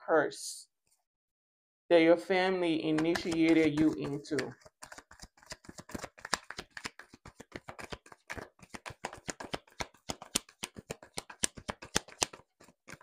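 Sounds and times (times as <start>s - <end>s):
rapid sharp clicks and taps: 2.9s - 13.0s.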